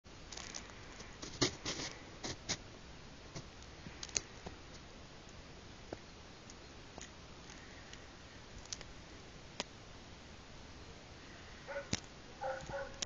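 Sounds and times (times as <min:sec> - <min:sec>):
faint steady hiss: 0:00.1 - 0:13.0
small clicks and ticks: 0:08.6 - 0:08.9.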